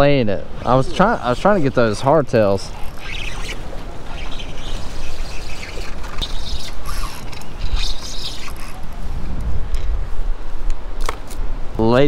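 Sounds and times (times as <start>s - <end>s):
spinning reel being cranked: 1.1s - 8.9s.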